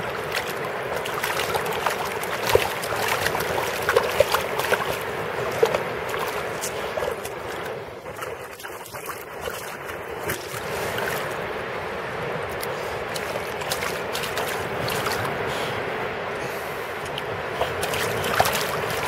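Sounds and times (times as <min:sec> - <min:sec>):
dog splashing in shallow water: 0:00.0 - 0:11.5, 0:12.6 - 0:15.7, 0:17.1 - 0:19.0
wash of seawater: 0:00.0 - 0:19.0.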